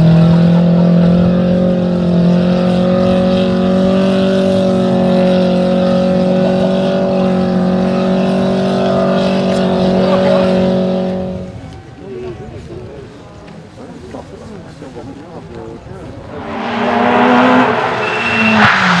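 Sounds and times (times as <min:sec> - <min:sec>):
car engine revving high: 0:00.0 - 0:11.6, 0:16.2 - 0:19.0.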